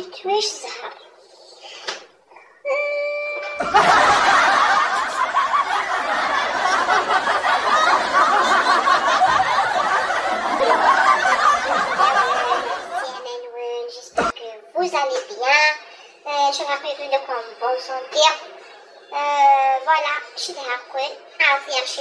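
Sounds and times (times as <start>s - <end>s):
crowd laughing: 3.4s - 13.2s.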